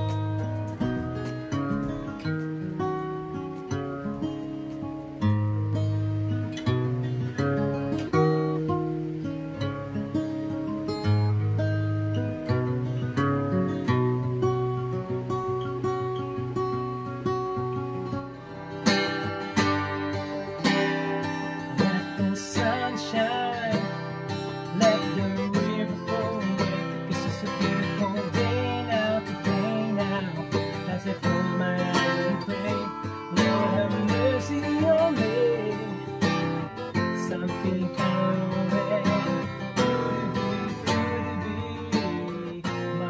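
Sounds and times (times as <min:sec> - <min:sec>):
acoustic guitar strumming: 0:00.0 - 0:43.0
man singing: 0:20.6 - 0:43.0.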